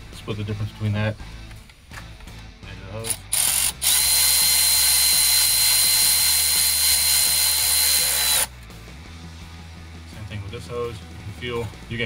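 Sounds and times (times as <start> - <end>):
electric ratchet whining: 3.0 - 8.7.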